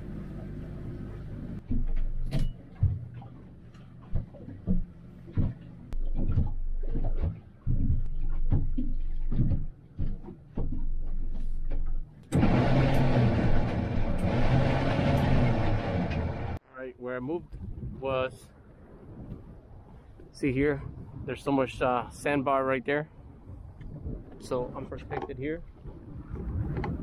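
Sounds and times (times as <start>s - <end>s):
boat engine running: 0.0s - 16.6s
irregular thumps: 1.6s - 12.3s.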